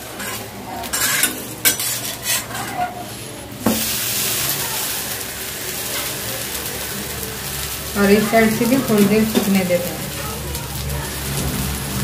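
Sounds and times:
batter sizzling in hot oil: 0.0s - 12.0s
spatula scraping a pan: 0.1s - 3.3s.

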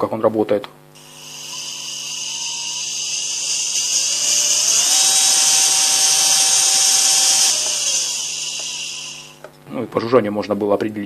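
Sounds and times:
electric motor buzzing whine: 1.0s - 9.6s.

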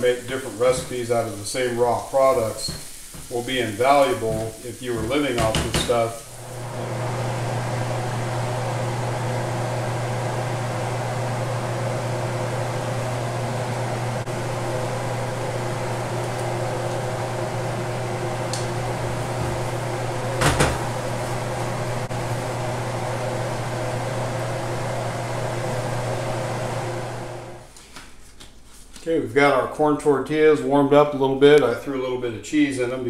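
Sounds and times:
kitchen appliance motor humming: 6.3s - 27.7s.

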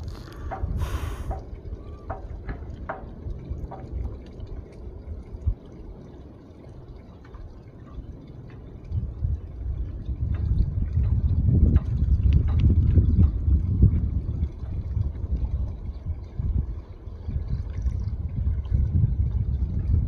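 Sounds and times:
small water plinks: 0.0s - 20.0s
water lapping and dripping: 0.0s - 20.0s
low rumble: 7.9s - 20.0s.

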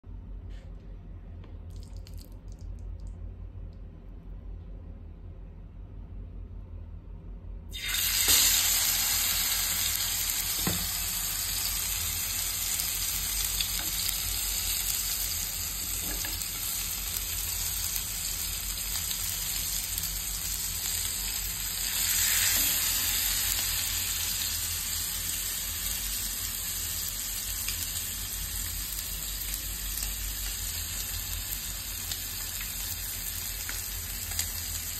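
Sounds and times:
fish sizzling in hot oil: 7.7s - 34.9s.

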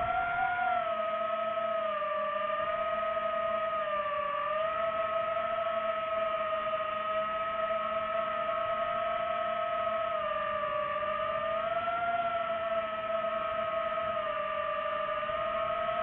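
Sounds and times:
drone propellers whining: 0.0s - 1.4s.

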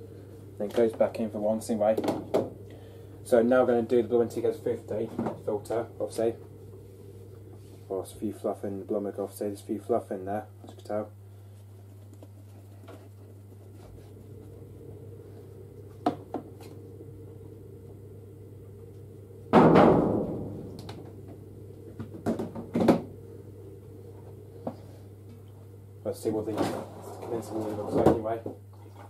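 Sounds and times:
steady low hum: 0.0s - 29.0s
loud ringing bang: 19.5s - 21.0s.

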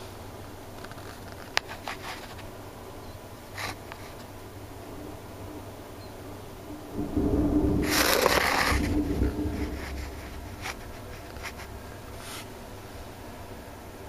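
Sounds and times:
thunder rumbling: 4.6s - 12.2s
thunder crack: 4.8s - 12.2s.

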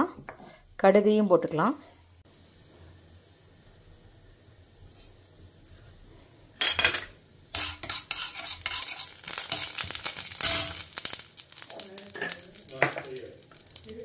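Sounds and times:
seeds sizzling in hot oil: 1.4s - 14.0s
spoon scraping metal pan: 6.6s - 11.0s.

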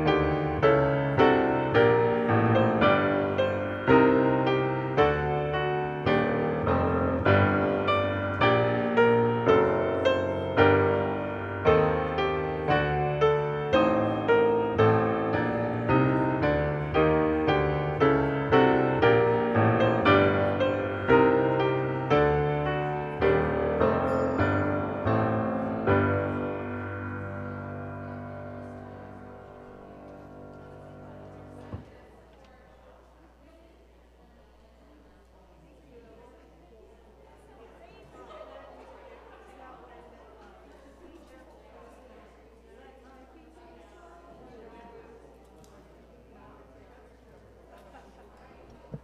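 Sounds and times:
solo piano chords: 0.0s - 32.2s.

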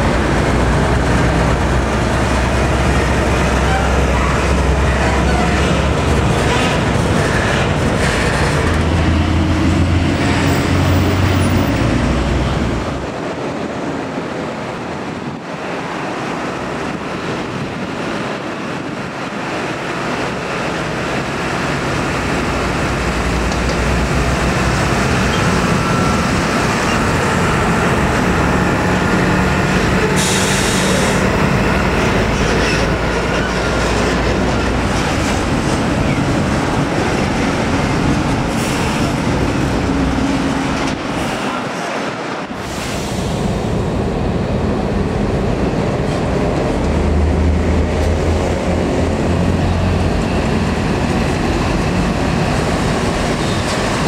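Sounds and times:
diesel trucks passing: 0.0s - 54.0s.

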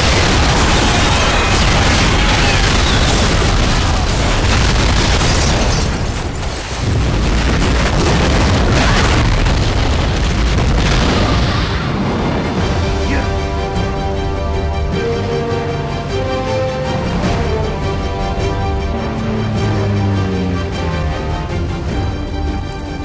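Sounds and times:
deep booming explosions: 0.0s - 15.0s.

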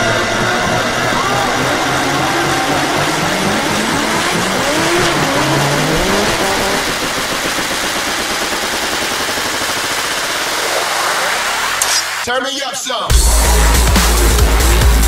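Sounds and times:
loud backing music: 0.0s - 6.7s, 13.1s - 15.0s
sliding tones: 0.0s - 9.6s.

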